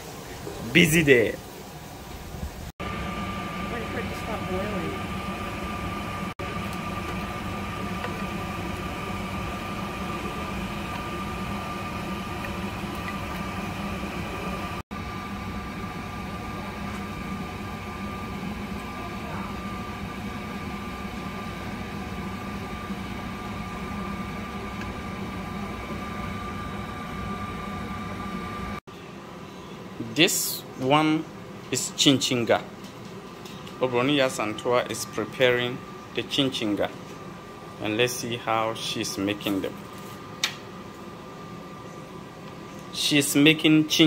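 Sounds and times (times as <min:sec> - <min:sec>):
appliance motor hum with high whine: 0:02.2 - 0:44.0.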